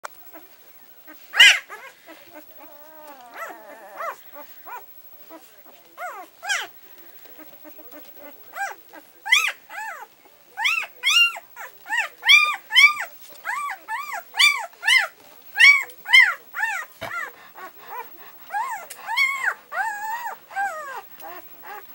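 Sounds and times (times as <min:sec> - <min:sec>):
puppies squealing and whining: 0:00.2 - 0:21.9.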